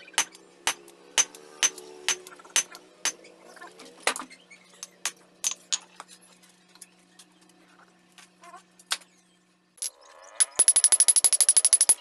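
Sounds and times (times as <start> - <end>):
metallic clicks and clinks: 9.8 - 12.0.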